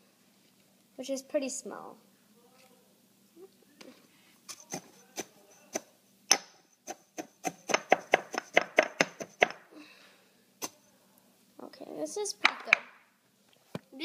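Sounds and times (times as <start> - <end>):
stone pestle pounding in mortar: 4.5 - 9.6.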